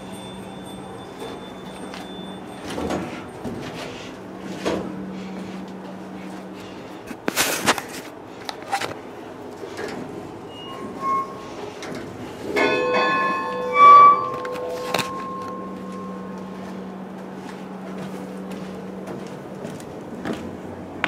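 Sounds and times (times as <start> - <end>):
metal bell struck: 0.0 - 2.8, 12.6 - 17.0.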